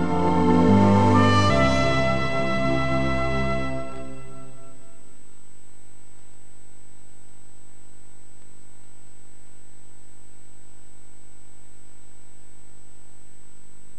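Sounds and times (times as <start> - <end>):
high-pitched tone: 0.0 - 5.0
electrical hum with hiss: 0.0 - 13.9.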